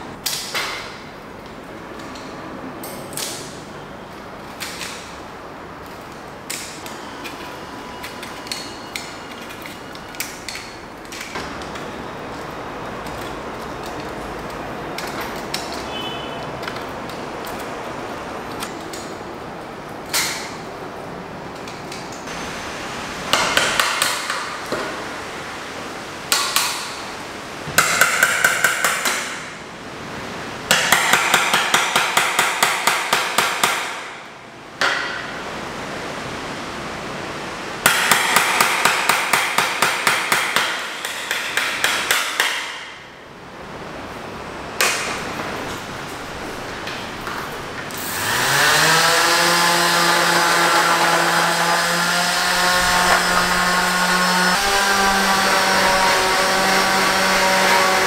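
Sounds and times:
hammer striking chisel: 23.3s - 24.9s, 26.3s - 27.0s, 27.7s - 29.5s, 30.7s - 34.2s, 34.8s - 35.4s, 37.8s - 43.0s, 44.8s - 45.2s.

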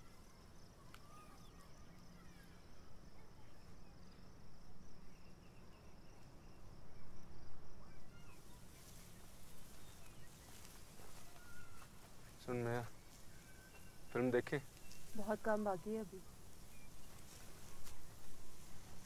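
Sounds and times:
insects trilling: 0.0s - 19.0s
soft rustling hiss: 8.4s - 19.0s.

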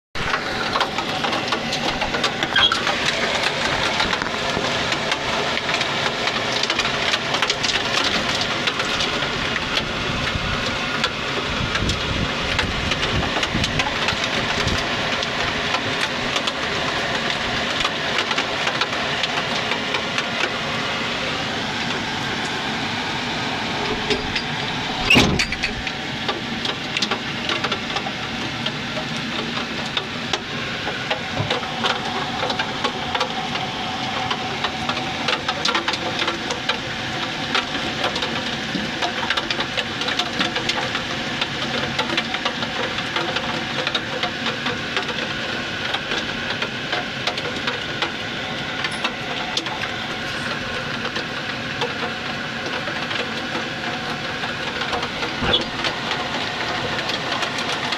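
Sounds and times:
rain drops pattering: 0.2s - 57.9s.

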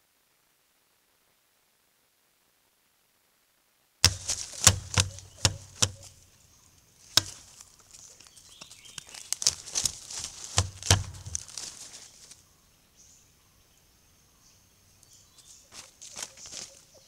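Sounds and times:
animal footsteps in dry leaves: 4.0s - 12.4s, 15.3s - 17.0s.

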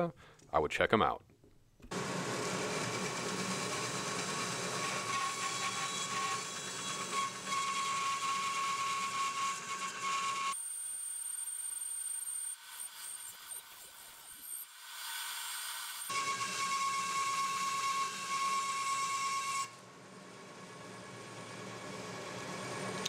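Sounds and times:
bandsaw cutting wood: 1.9s - 10.6s, 12.5s - 19.7s.

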